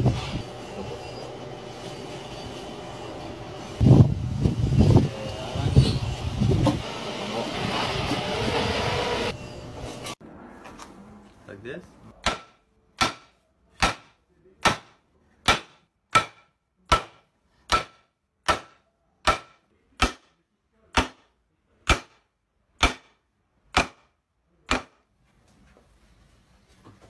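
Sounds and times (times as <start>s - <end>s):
hammer striking timber beam: 12.2s - 25.0s.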